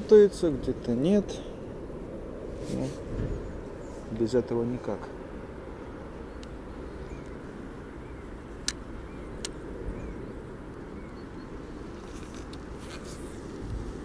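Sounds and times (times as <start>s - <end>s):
low outdoor rumble: 0.0s - 14.0s
bird chirping faintly: 6.2s - 12.0s
sharp clicks: 8.6s - 8.8s.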